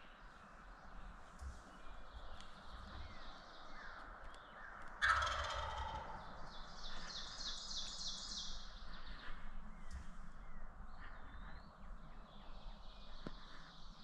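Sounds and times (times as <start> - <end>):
faint songbird calls: 0.0 - 14.0
turkey gobbling: 5.0 - 6.2.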